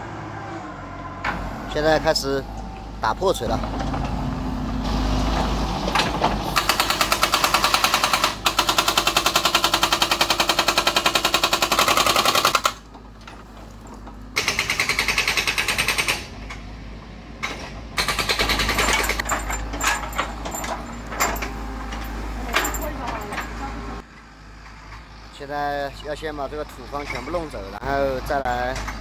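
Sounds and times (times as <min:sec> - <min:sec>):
hydraulic breaker hammer pounding rock: 0:05.9 - 0:12.9, 0:13.9 - 0:16.4, 0:17.4 - 0:21.5.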